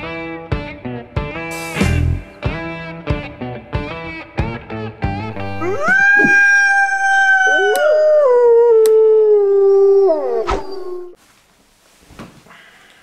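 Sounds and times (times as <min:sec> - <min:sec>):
wolves howling: 0:05.5 - 0:11.2.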